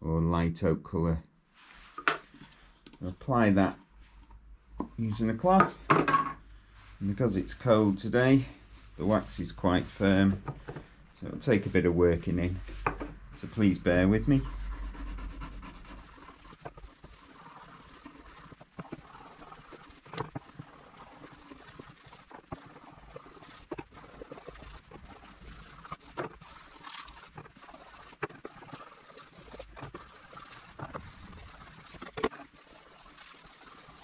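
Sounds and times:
cloth scrubbing wood: 4.9s - 5.6s, 6.7s - 34.0s.

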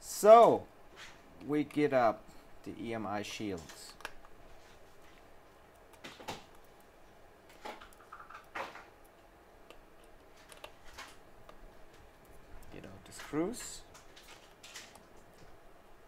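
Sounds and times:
small tools clicking and scraping: 9.7s - 11.6s.

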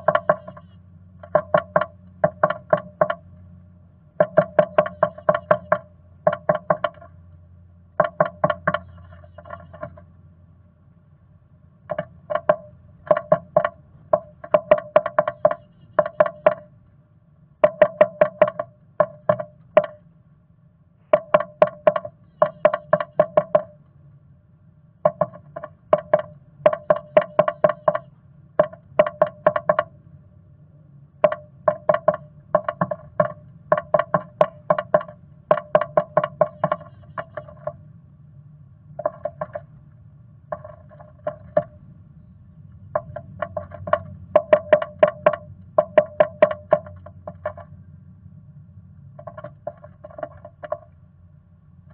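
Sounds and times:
bird pecking wood: 0.0s - 3.3s, 4.2s - 7.2s, 8.0s - 10.0s, 11.9s - 16.7s, 17.6s - 20.0s, 21.1s - 23.8s, 25.0s - 29.9s, 31.2s - 37.8s, 39.0s - 39.7s, 40.5s - 41.8s, 42.8s - 47.8s, 49.2s - 51.0s.

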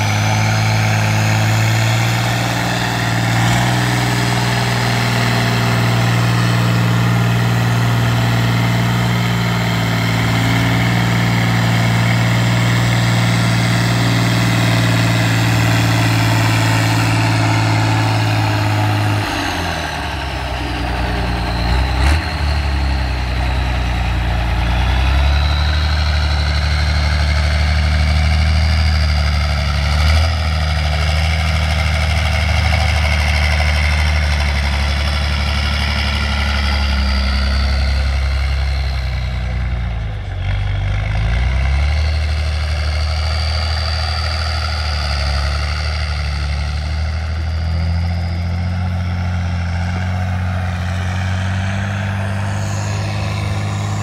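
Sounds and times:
high whine: 0.0s - 27.9s, 49.4s - 54.0s
truck engine under load: 0.0s - 54.0s.

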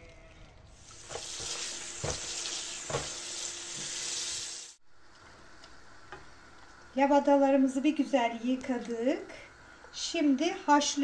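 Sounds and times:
hot water hissing in a pot: 0.7s - 4.8s.

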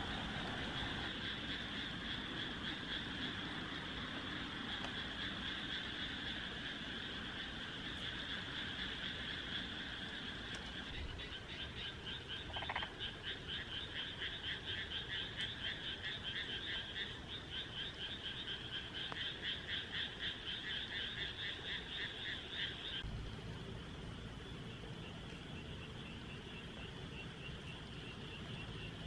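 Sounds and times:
frog calling rapidly: 0.5s - 23.0s.

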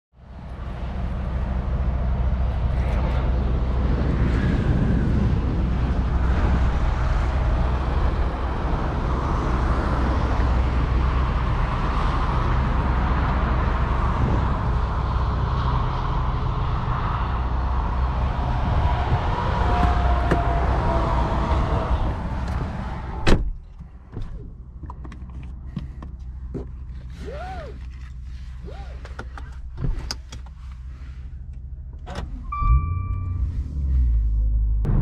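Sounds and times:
low engine drone: 0.2s - 35.0s
road traffic noise: 0.2s - 35.0s.

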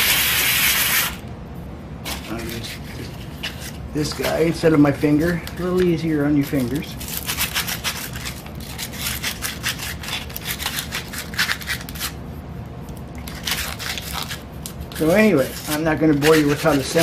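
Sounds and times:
sandpaper rasping on pipe: 0.0s - 1.2s, 6.6s - 12.2s, 13.3s - 17.0s.

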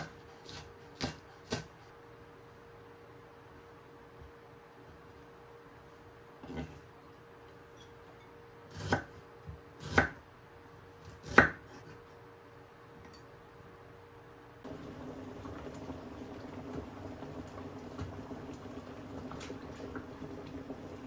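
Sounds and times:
boiling hiss: 14.6s - 21.0s.

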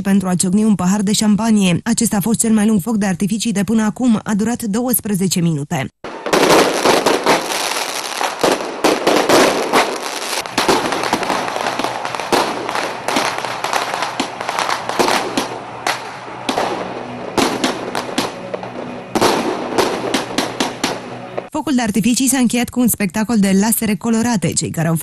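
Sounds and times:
fireworks bangs and crackling: 6.0s - 21.5s.

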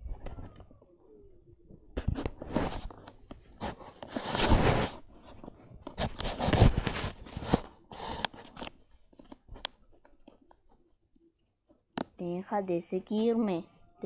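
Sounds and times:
microphone rubbing on bedding: 2.0s - 7.7s.

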